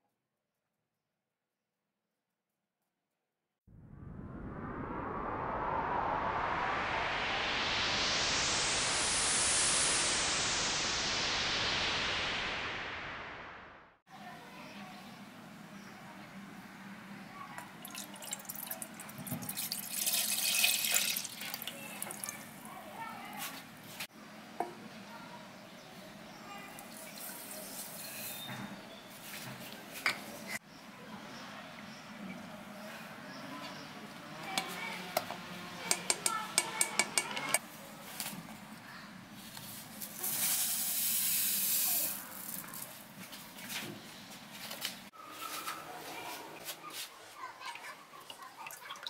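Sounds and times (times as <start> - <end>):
milk splashing into pan: 17.8 - 22.7
plastic spoon tapping a saucepan: 35.9 - 37.6
sugar pouring from paper sachet: 40.0 - 43.0.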